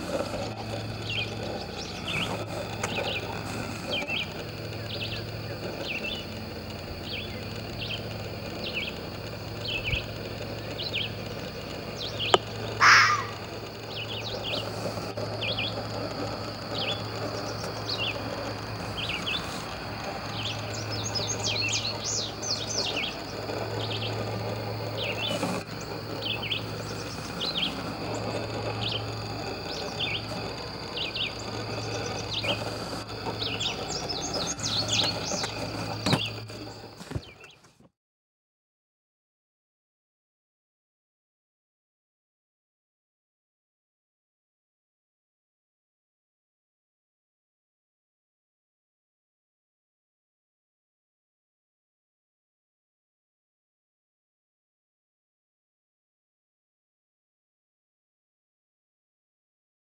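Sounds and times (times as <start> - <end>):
birds chirping: 0.0 - 37.7
loud sharp bird cry: 11.9 - 14.7.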